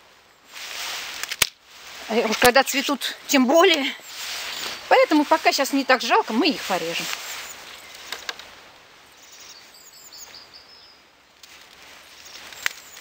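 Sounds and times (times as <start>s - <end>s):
pruning shears snipping: 1.0s - 1.6s
bird chirping: 2.1s - 11.1s, 12.0s - 13.0s.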